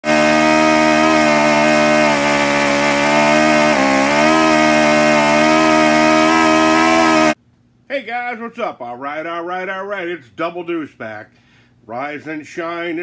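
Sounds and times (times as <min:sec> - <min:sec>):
model engine running at fast idle: 0:00.0 - 0:07.4.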